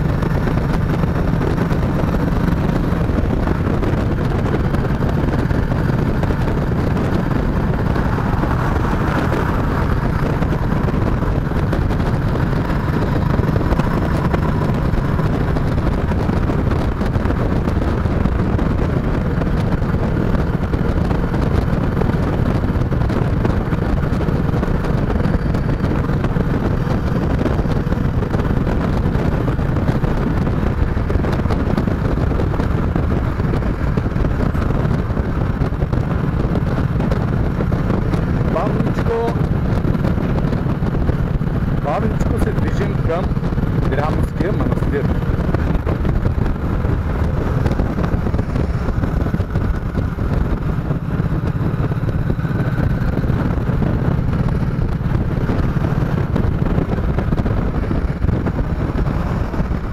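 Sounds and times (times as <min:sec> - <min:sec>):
motorcycle engine running: 0:00.0 - 0:59.9
wind rushing over microphone: 0:00.0 - 0:59.9.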